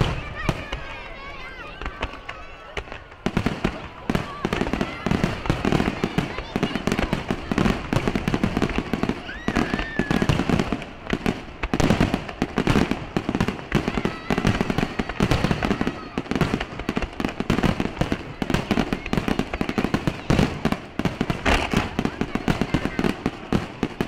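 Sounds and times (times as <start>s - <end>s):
fireworks bursting: 0.0s - 24.0s.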